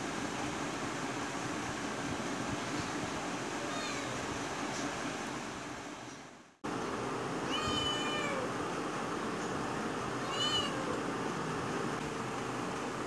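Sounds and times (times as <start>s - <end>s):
young cat meowing: 3.6s - 4.2s, 7.5s - 8.5s, 10.2s - 11.0s.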